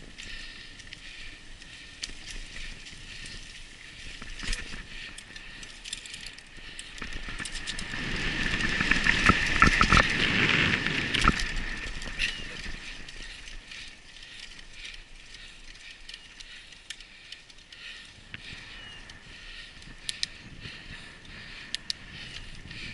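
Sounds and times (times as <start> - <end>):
bike chain and frame rattling: 0.0 - 22.9
clicks and knocks from bumps: 8.6 - 10.4.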